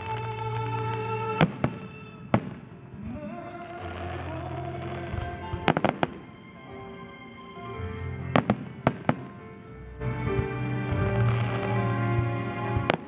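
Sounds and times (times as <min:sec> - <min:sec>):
music playing: 0:00.0 - 0:13.0
fireworks bursting in bangs: 0:01.4 - 0:06.3, 0:08.4 - 0:09.4, 0:12.8 - 0:13.0.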